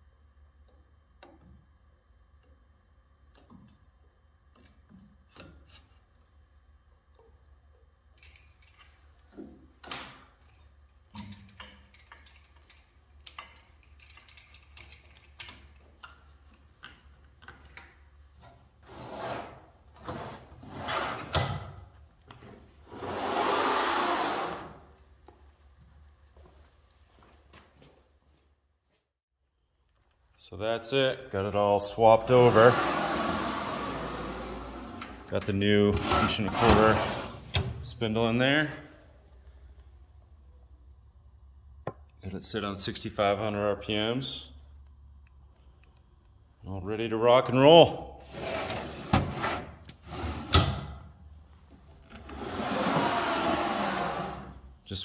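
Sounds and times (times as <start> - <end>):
metal machine parts clicking and scraping: 10.4 - 16.1.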